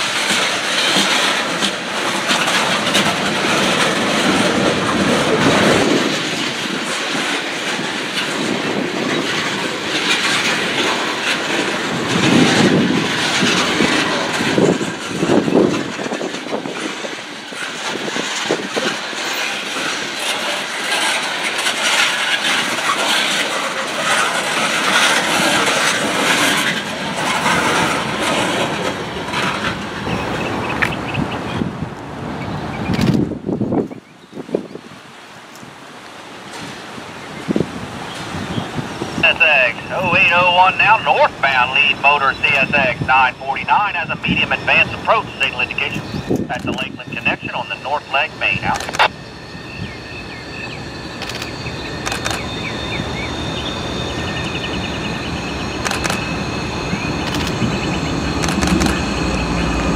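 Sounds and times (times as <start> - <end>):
train wheels clattering on rails: 0.0 - 31.6.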